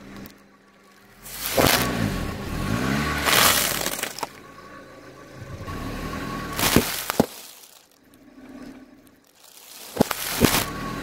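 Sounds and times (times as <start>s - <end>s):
low car engine: 0.0s - 11.0s
tyre crushing snack packets: 0.9s - 2.0s, 3.1s - 4.4s, 6.6s - 8.0s, 9.2s - 11.0s
sharp cracks: 1.2s - 2.1s, 3.1s - 4.4s, 6.6s - 8.1s, 9.1s - 11.0s.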